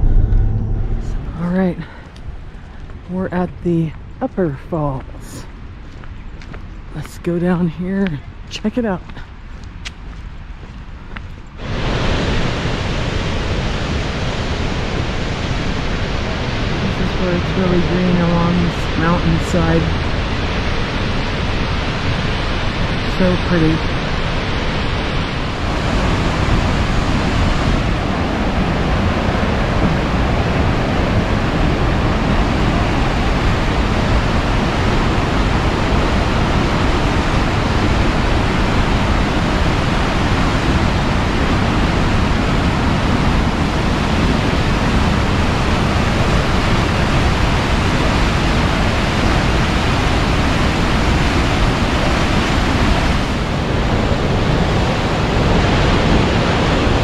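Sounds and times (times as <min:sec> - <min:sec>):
whitewater rushing over falls: 0:11.6 - 0:57.0.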